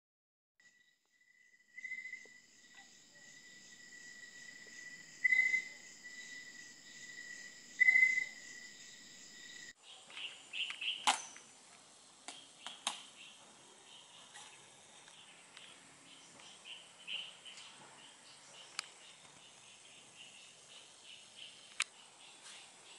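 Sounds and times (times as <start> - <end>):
high insect shrill: 0.7 - 9.7
birds chirping: 1.4 - 11.1, 12.3 - 22.9.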